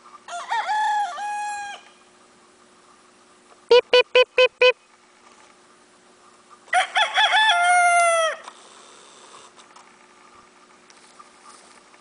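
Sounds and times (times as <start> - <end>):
rooster crowing: 0.3 - 1.9, 6.7 - 8.5.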